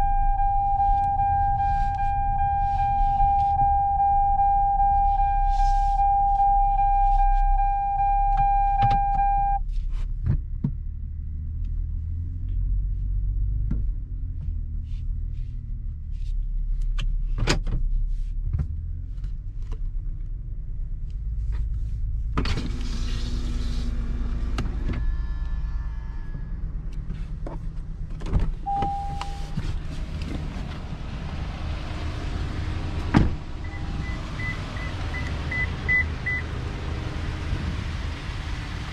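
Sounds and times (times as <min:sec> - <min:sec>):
high beeps: 0:00.0 - 0:09.6, 0:28.7 - 0:29.6, 0:33.6 - 0:36.4
engine and road rumble: 0:00.0 - 0:38.9
chime tone: 0:28.7 - 0:29.5.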